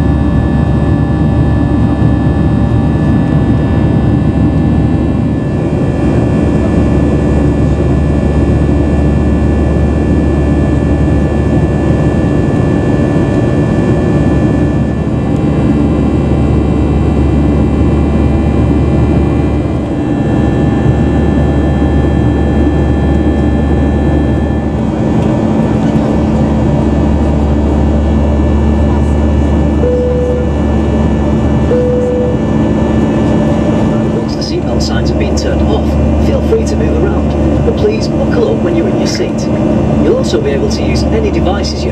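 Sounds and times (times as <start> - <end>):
jet engine drone with fan whine: 0.0 - 41.9.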